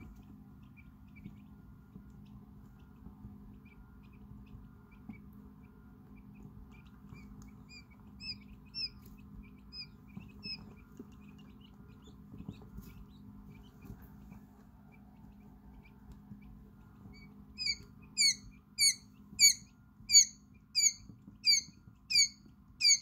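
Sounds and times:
chicks peeping: 0.0 - 23.0
low steady hum: 0.0 - 23.0.

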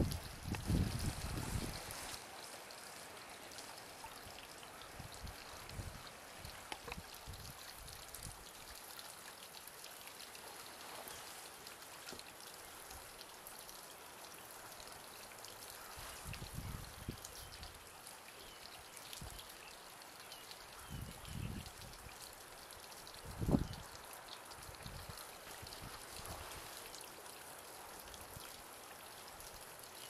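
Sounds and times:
light rain pattering: 0.0 - 30.0.

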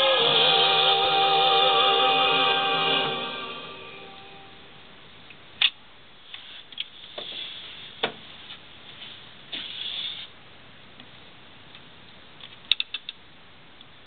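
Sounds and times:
phonograph music: 0.0 - 4.7.

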